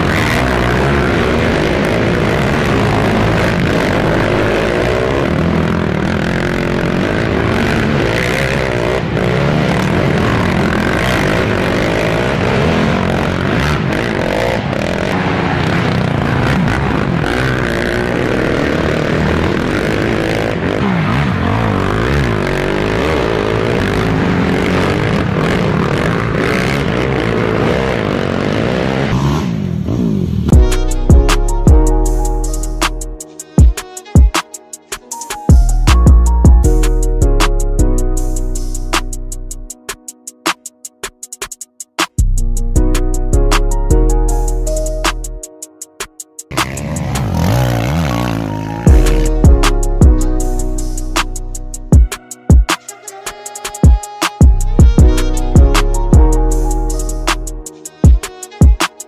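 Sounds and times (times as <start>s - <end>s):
atv engines revving: 0.0s - 30.5s, 46.5s - 50.5s.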